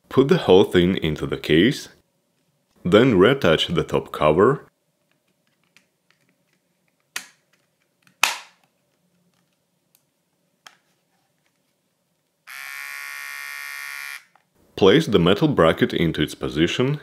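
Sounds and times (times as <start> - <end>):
hair clipper buzz: 12.5 - 14.3.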